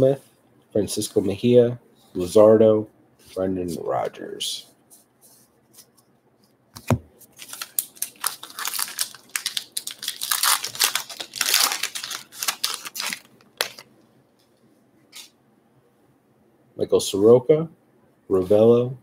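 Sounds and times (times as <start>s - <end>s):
wrapper tearing and crinkling: 7.3s - 13.9s.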